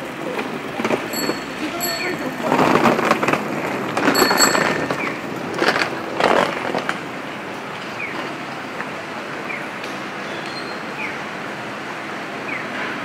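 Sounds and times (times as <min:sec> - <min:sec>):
street background noise: 0:00.0 - 0:13.0
short rattling clatters: 0:00.8 - 0:07.0.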